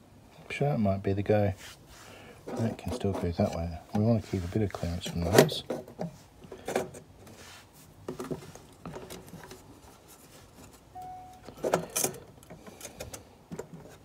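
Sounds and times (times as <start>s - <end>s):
knocks and scrapes in metal box: 2.4s - 3.6s, 4.8s - 7.4s.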